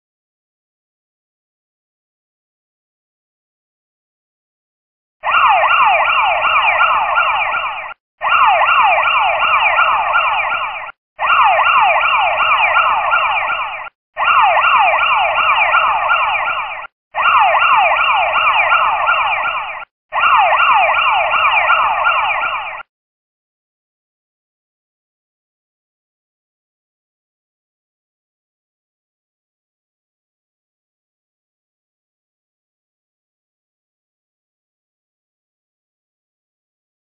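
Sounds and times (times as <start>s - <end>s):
electronic siren wailing: 5.2s - 22.9s.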